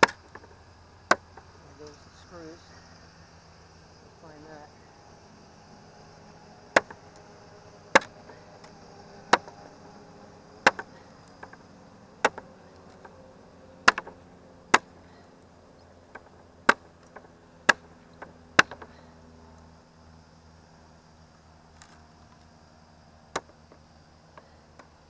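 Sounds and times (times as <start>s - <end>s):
machete chopping wood: 0.0s - 0.5s, 1.1s - 1.5s, 6.7s - 7.0s, 7.9s - 9.7s, 10.6s - 11.6s, 12.2s - 13.1s, 13.8s - 15.0s, 16.1s - 19.0s, 23.3s - 23.8s.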